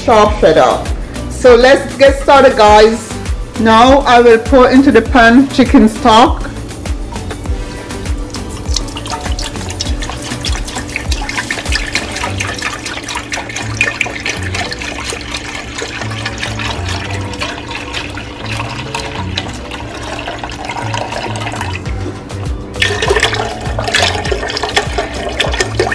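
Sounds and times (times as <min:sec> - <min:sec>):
stock pouring into a pot: 0:07.9 - 0:22.1, 0:22.8 - 0:25.9.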